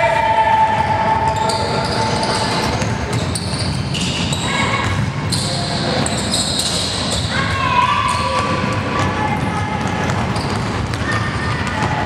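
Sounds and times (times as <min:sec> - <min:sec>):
shoes squeaking: 0:01.3 - 0:08.5, 0:09.9 - 0:12.0.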